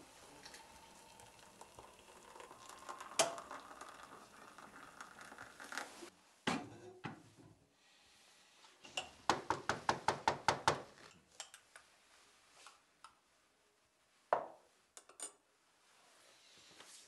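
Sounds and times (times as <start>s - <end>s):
spoon clinking in a mug: 0.4s - 5.6s.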